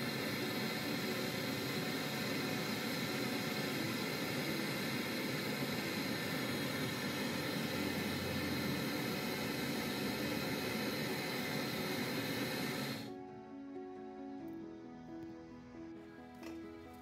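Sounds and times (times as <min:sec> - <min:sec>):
brazing torch hissing flame: 0:00.0 - 0:13.1.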